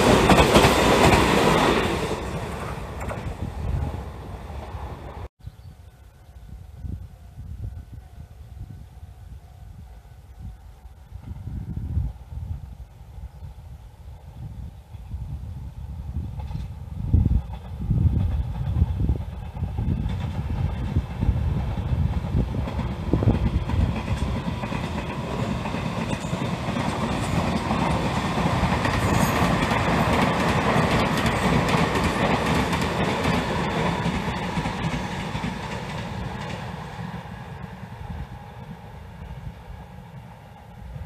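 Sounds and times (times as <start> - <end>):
electric trains passing: 0.0 - 5.3, 6.0 - 41.0
train wheels on rails: 0.0 - 5.3, 14.1 - 41.0.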